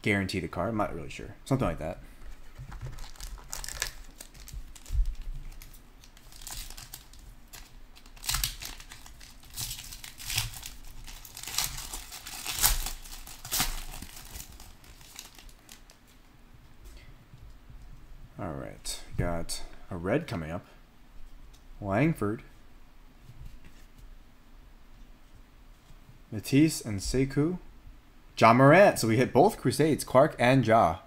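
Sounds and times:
foil card pack crinkling: 2.2s - 16.0s
wrapper tearing open: 2.6s - 16.0s.

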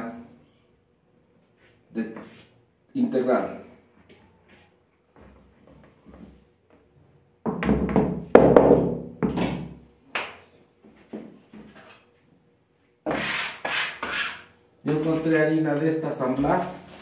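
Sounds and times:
thuds and knocks: 7.5s - 9.7s
rasping rub: 13.1s - 14.5s.

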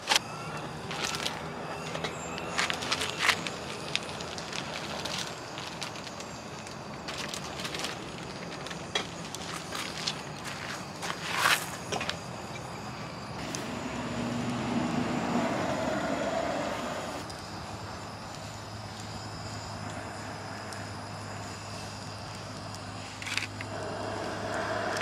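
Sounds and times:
low engine hum: 12.4s - 25.0s
vehicle passing by: 13.4s - 17.2s, 23.7s - 25.0s.

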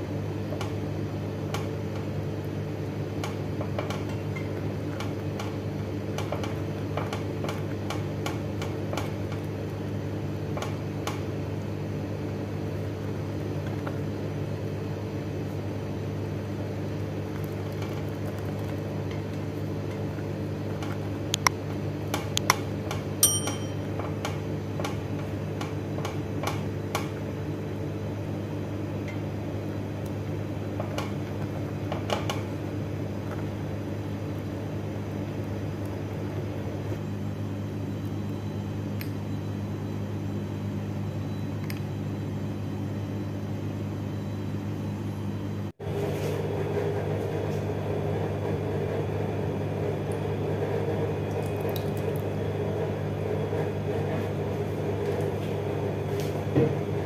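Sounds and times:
steady low hum: 0.0s - 57.0s
metallic clinks: 23.2s - 23.8s.

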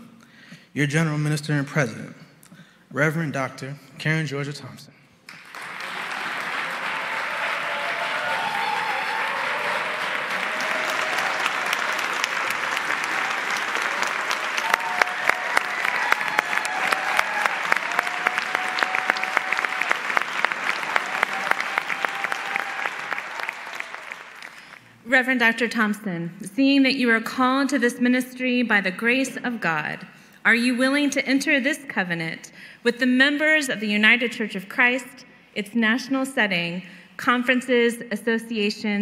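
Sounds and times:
crowd applauding: 5.3s - 25.0s.

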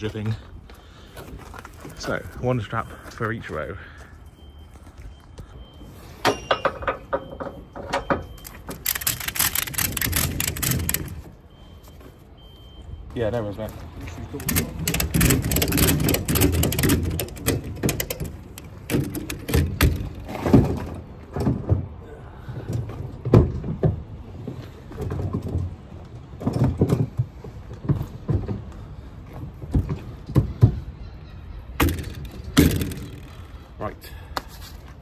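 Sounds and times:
ratchet strap clicking: 8.5s - 11.2s, 14.4s - 20.2s, 31.8s - 33.5s.

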